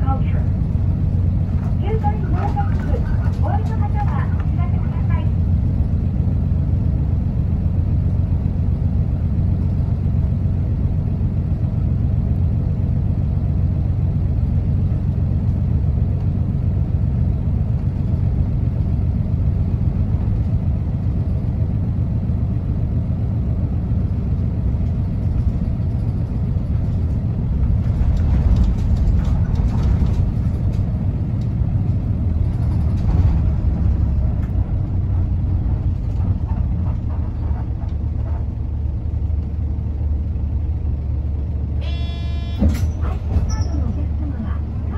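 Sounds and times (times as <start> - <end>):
bus engine rumble: 0.0 - 44.9
road noise: 0.0 - 44.9.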